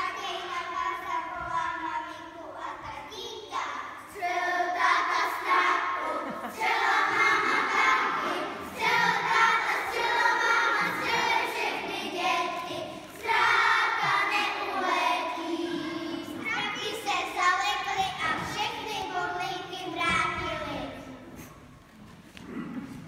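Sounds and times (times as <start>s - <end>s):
children singing together: 3.7s - 21.0s.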